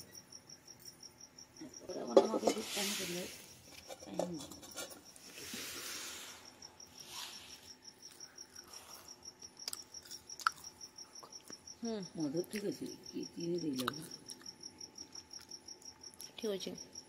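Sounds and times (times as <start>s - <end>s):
cricket chirping: 0.0s - 17.0s.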